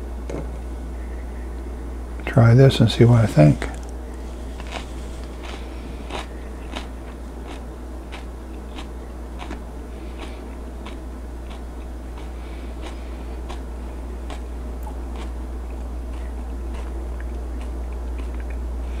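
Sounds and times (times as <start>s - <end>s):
person chewing crunchy pepper: 3.6s - 18.7s.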